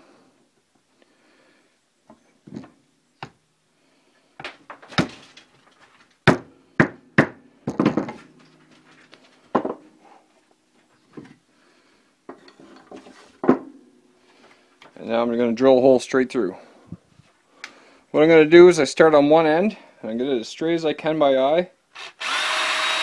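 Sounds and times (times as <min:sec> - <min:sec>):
tools handled on wooden board: 0:02.1 - 0:03.4, 0:07.6 - 0:10.0, 0:12.3 - 0:13.8.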